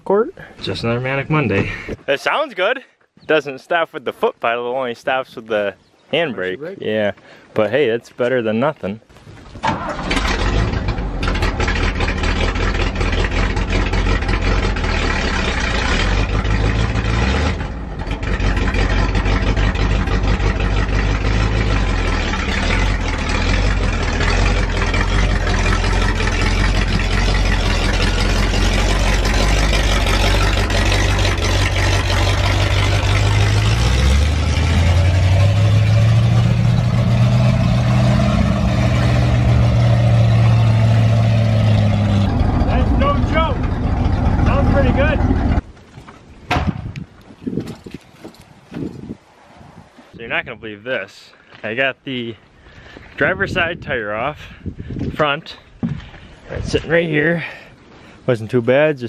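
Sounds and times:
truck engine idling: 0:09.7 - 0:45.6.

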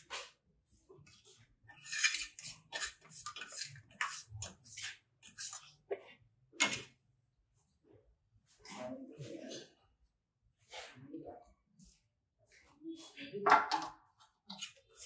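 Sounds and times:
steel float scraping wet cement: 0:01.7 - 0:05.7.

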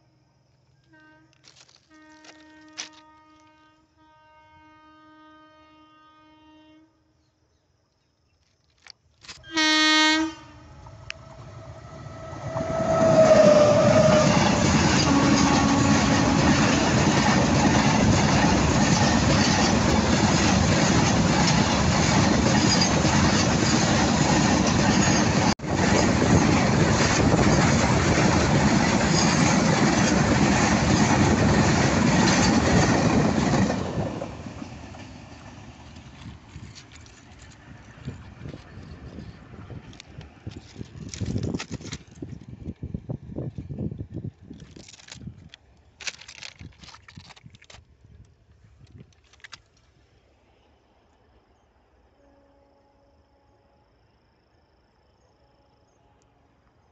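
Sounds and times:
train horn blast: 0:00.8 - 0:07.2, 0:09.4 - 0:16.8, 0:52.2 - 0:54.0
train wheels clattering on track: 0:12.1 - 0:42.6.

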